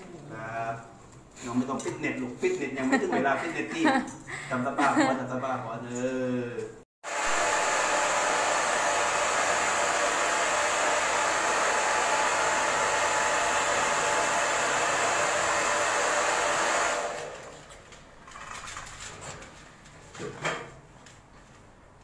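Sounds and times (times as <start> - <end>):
pet blow dryer rushing: 7.0 - 17.6.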